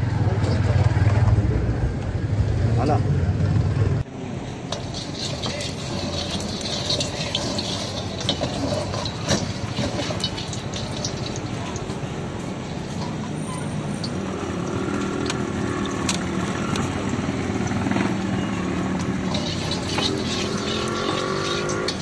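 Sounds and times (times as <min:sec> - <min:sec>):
passing traffic hum: 0:00.0 - 0:22.0
gas burner roaring: 0:04.0 - 0:22.0
ladle clinking against wok: 0:04.6 - 0:12.0, 0:19.2 - 0:22.0.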